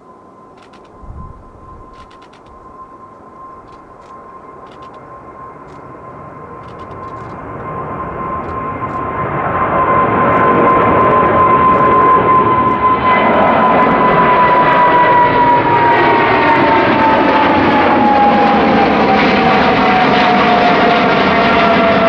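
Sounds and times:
jet engines roaring overhead: 0.0s - 22.0s
fan whine falling in pitch: 0.5s - 5.0s.

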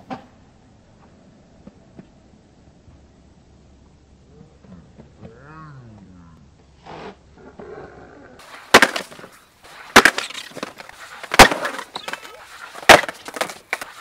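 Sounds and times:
skateboard wheels rolling: 8.4s - 14.0s
skateboard clacking: 8.7s - 14.0s.

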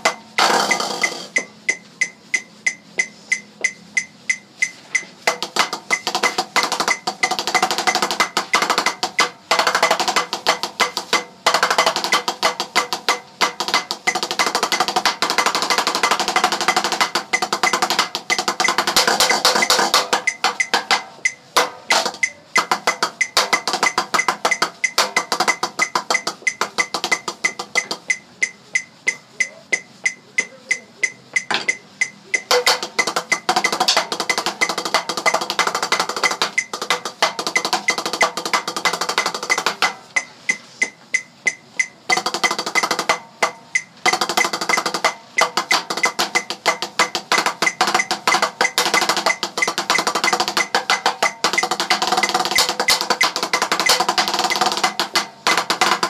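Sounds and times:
sharp percussive clicks: 0.0s - 56.0s.

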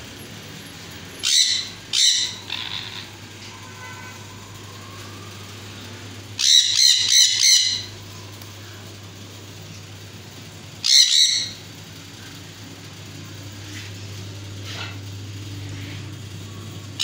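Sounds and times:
parrots screeching: 1.2s - 4.4s, 6.4s - 8.0s, 10.8s - 11.6s.

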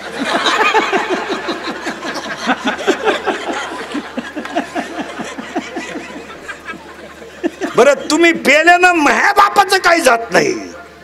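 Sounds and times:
audience laughing: 0.0s - 8.5s.

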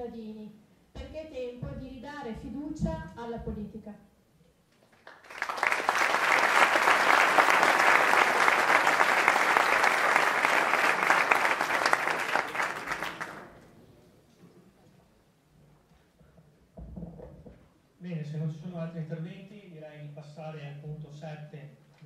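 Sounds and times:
crowd applause: 5.0s - 13.7s.

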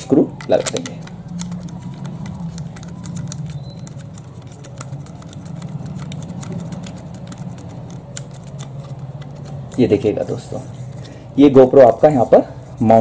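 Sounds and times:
steady low hum: 0.0s - 13.0s
thumbscrew clicks: 0.4s - 10.1s.

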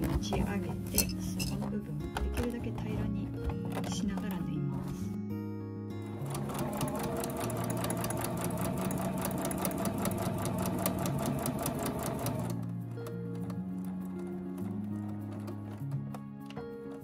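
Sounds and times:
soft background music: 0.0s - 17.0s
electric sewing machine stitching: 6.0s - 12.7s.

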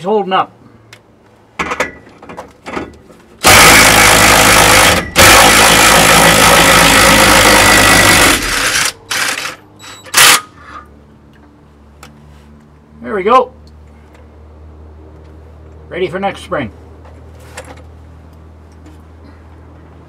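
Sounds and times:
cordless impact driver running: 3.4s - 9.6s.

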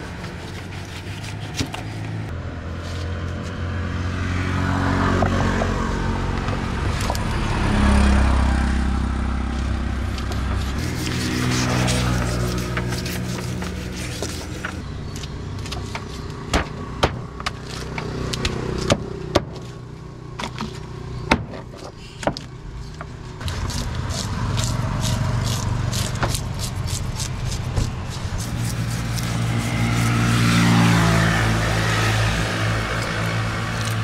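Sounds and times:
vehicle engine running: 5.5s - 21.3s.

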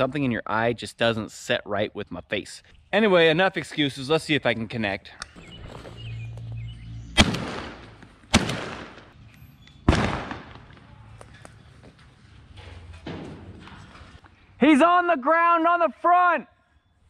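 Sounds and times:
shotgun shots with echo: 7.2s - 9.1s, 9.9s - 10.7s.

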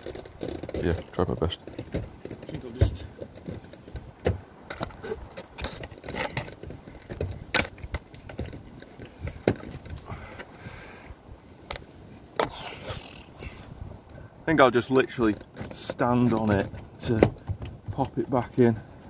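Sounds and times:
plastic roof panels knocking and creaking: 0.0s - 10.4s, 14.9s - 18.8s
camera handling bumps: 0.0s - 10.5s.

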